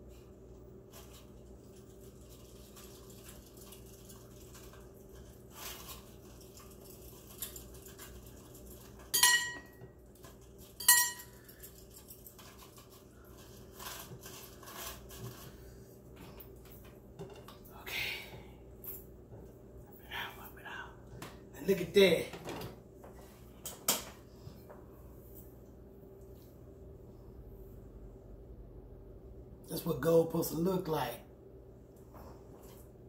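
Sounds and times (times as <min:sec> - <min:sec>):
sharp metallic clinks: 0:10.8 - 0:11.4.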